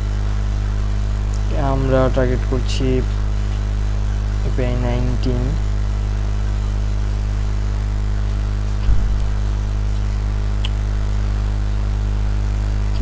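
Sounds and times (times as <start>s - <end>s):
steady low hum: 0.0s - 13.0s
soft low thump: 8.8s - 9.4s.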